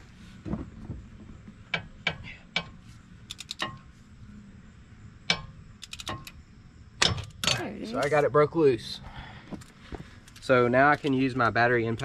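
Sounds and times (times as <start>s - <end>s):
ratchet clicking on a bolt: 1.7s - 3.9s, 5.3s - 6.4s.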